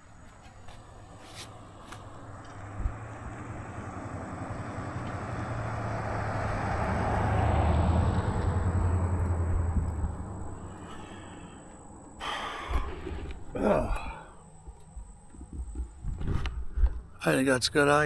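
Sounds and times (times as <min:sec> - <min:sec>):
car passing on road: 0:00.2 - 0:14.6.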